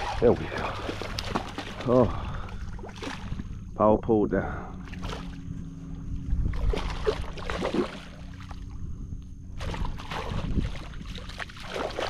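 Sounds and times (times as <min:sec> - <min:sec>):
fish splashing in water: 0:00.0 - 0:03.5, 0:06.5 - 0:08.7, 0:09.6 - 0:12.0.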